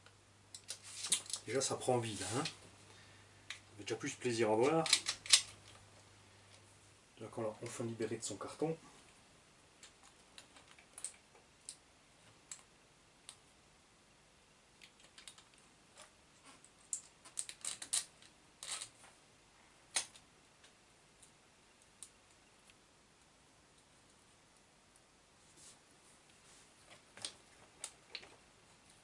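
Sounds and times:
small metal parts clicking: 4.8 - 5.6, 16.9 - 18.9.

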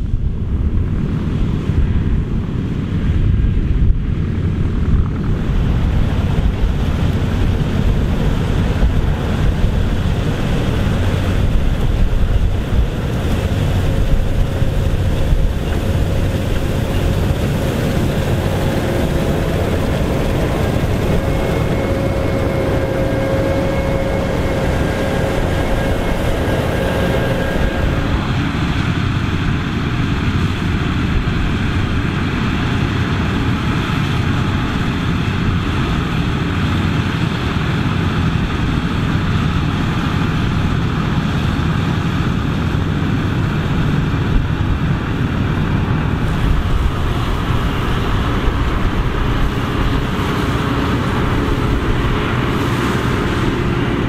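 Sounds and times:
combine harvester running: 0.0 - 54.0
steady whine: 0.0 - 54.0
tractor running: 0.0 - 54.0.

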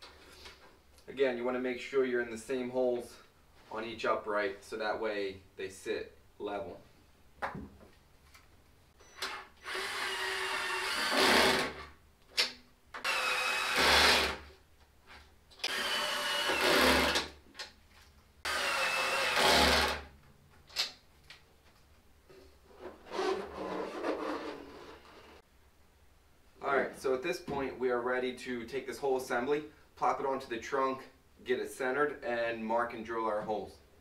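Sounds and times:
cordless drill driving bolts: 9.0 - 11.9, 13.0 - 14.5, 15.6 - 17.4, 18.4 - 20.1.

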